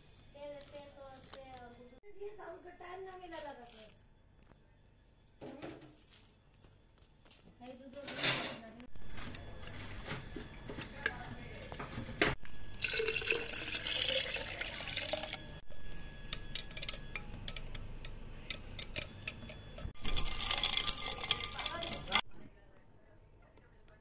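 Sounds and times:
whisk clicking against container: 16.3s - 22.2s
liquid sloshing and splashing: 20.0s - 22.2s.

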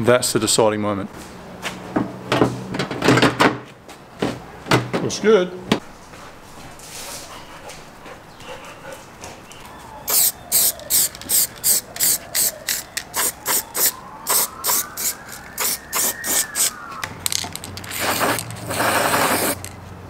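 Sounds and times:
spray can bursts: 10.1s - 16.8s, 17.8s - 19.7s.

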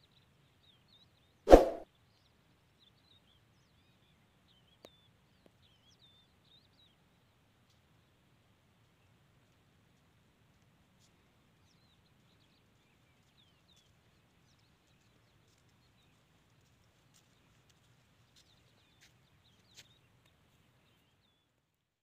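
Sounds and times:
small birds chirping: 18.3s - 21.5s.

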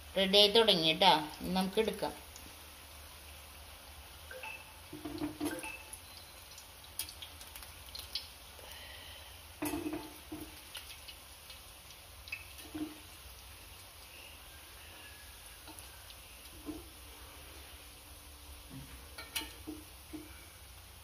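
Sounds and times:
frying in hot oil sizzle: 0.0s - 21.0s
steel tongs clicking on pan: 19.2s - 19.7s.

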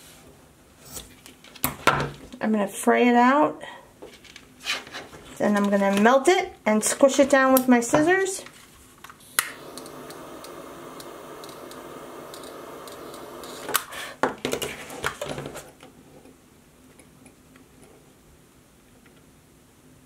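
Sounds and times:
torch lighter hissing: 9.2s - 14.1s
lighter clicks: 9.4s - 13.9s.

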